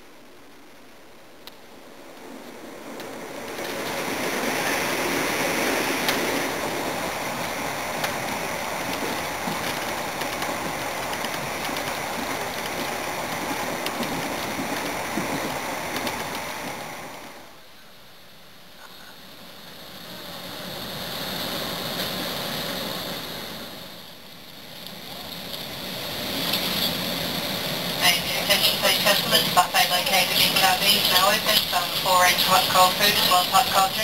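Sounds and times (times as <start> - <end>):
train wheels rushing on rails: 0.4 - 17.6, 18.9 - 34.0
sharp clicks of train wheels: 1.4 - 17.4, 24.3 - 29.6.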